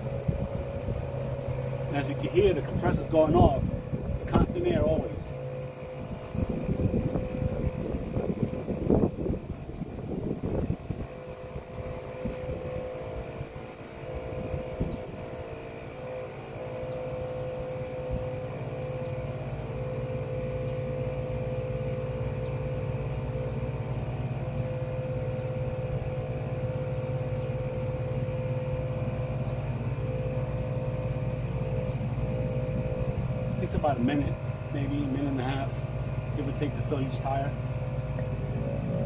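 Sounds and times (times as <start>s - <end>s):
air compressor running: 0.0s - 39.0s.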